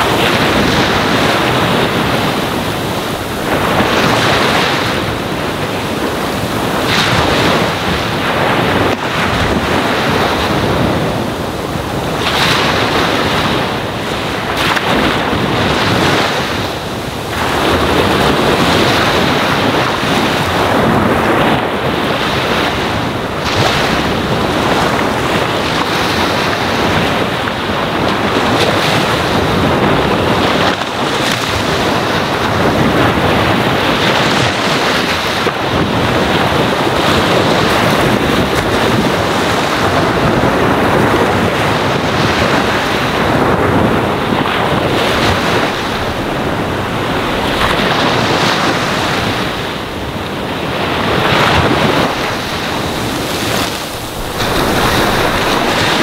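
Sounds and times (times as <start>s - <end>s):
ocean waves on sandy shore: 0.0s - 56.0s.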